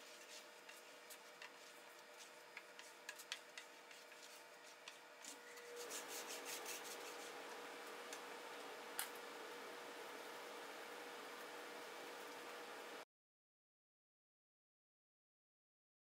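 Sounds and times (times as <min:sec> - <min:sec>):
faint rubbing with light ticks: 0:00.0 - 0:07.4
steady hiss with thin hum: 0:00.0 - 0:13.0.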